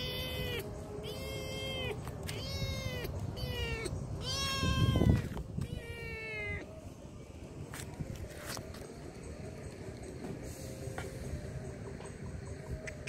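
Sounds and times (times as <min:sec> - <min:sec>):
kitten meowing: 0:00.0 - 0:06.7.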